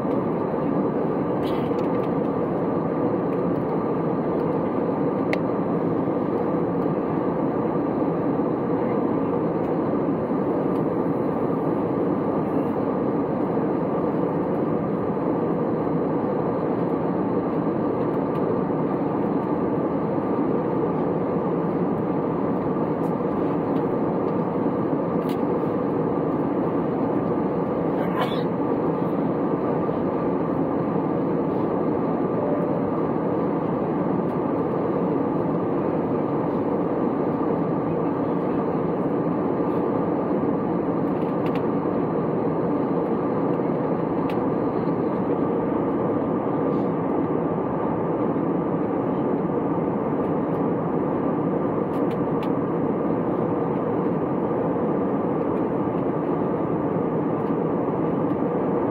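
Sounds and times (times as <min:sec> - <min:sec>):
airplane cabin engine rush: 0:00.0 - 0:58.9
faint steady hum: 0:00.0 - 0:58.9.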